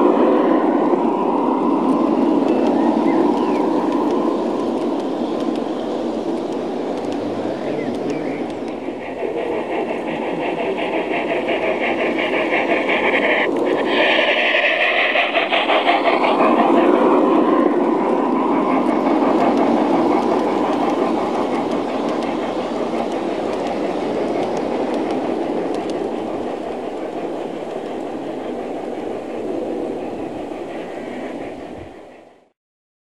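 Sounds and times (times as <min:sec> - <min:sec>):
model train wheels clattering: 0:02.4 - 0:31.7.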